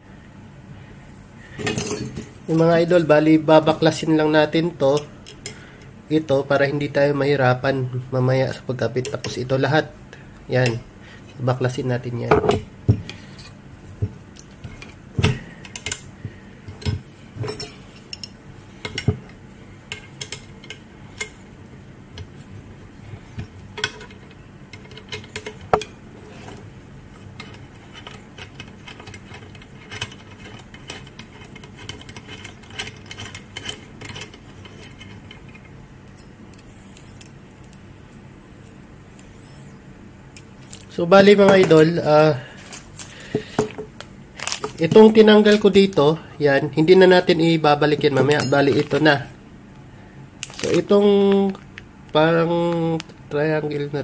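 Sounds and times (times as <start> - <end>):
allen key and screws clicking: 23.8 - 25.9, 27.4 - 37.8.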